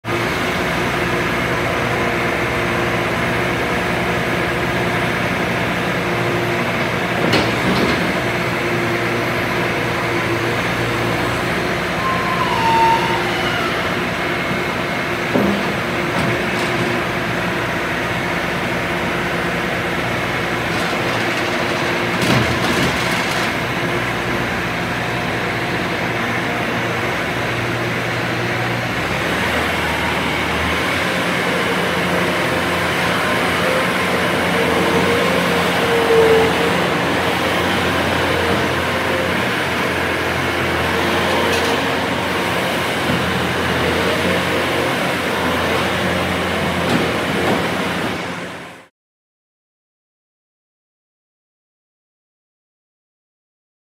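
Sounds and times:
diesel engine running: 0.1 - 48.8
short squeak: 11.9 - 14.7.

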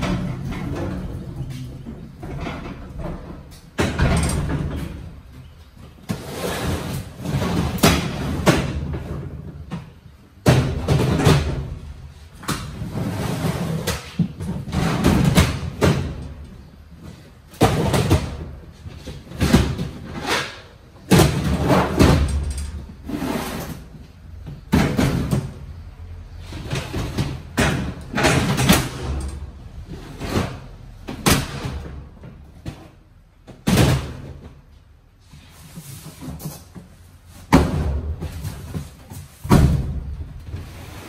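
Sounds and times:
plastic totes thumping and knocking: 0.0 - 25.8, 26.4 - 34.7, 36.0 - 40.8.

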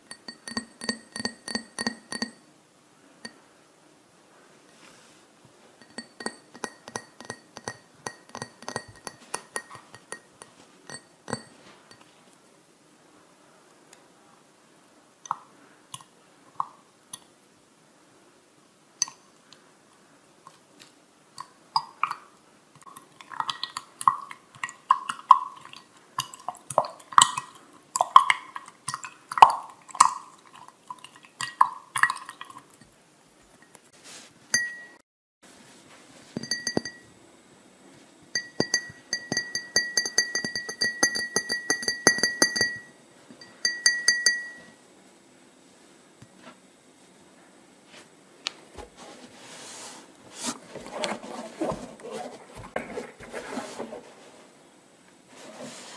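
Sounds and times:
clinks against glass: 0.0 - 2.4, 5.8 - 12.1, 34.6 - 35.0, 36.4 - 37.1, 38.3 - 44.8
glass ringing: 0.0 - 2.4, 5.8 - 12.0, 34.6 - 35.0, 36.4 - 37.1, 38.3 - 44.8.

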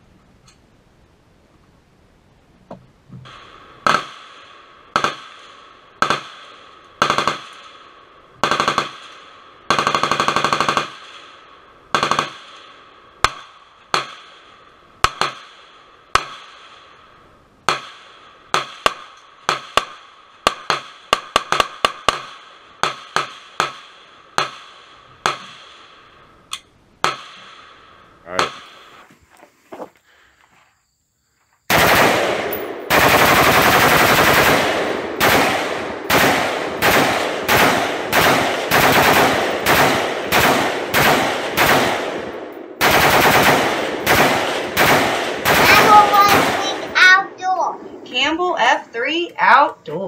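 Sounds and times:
rapid rattle of gunshots: 3.3 - 17.0, 17.6 - 26.2, 27.0 - 28.8, 31.7 - 47.0.

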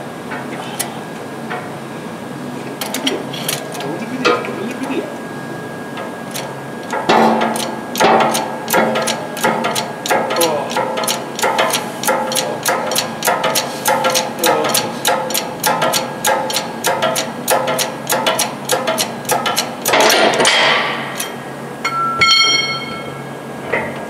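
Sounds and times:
hydraulic press pump clicking: 6.3 - 21.4
metal ringing: 21.8 - 23.3.

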